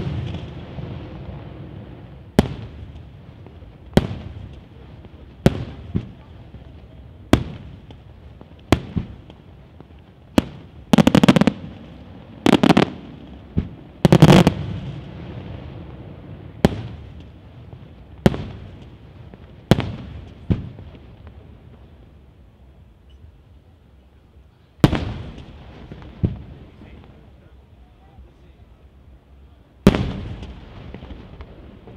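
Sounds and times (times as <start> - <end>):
rapid firework crackling: 0.0 - 21.7.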